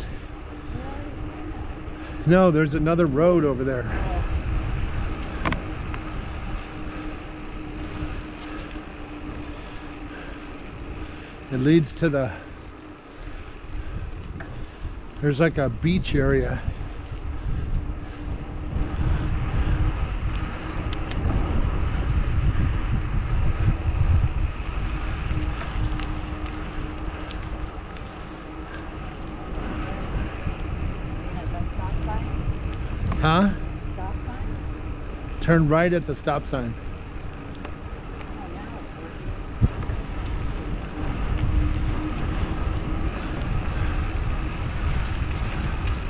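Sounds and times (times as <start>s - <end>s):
faint steady hum: 0.0s - 16.0s
bicycle tyres rolling on asphalt: 0.0s - 46.0s
wind rumbling on microphone: 0.0s - 46.0s
faint ticks: 5.1s - 15.2s, 20.3s - 21.3s, 24.9s - 29.6s, 35.8s - 46.0s.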